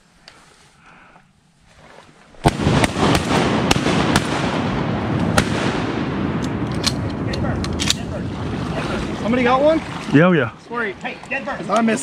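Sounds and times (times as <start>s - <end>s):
shotgun shots: 2.4s - 8.0s.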